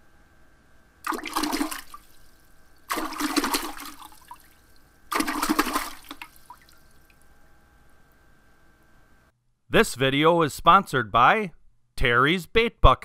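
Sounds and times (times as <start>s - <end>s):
rushing splash sound effects: 1.1s - 2.2s, 2.9s - 4.4s, 5.1s - 6.6s.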